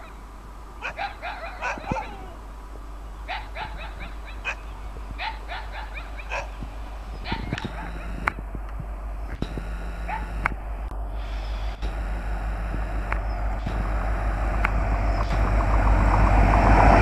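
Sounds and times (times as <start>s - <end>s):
diesel locomotive rumble: 0.0s - 17.0s
dog barking and yelping: 0.8s - 2.4s, 3.3s - 6.6s, 7.2s - 8.2s, 10.0s - 10.4s.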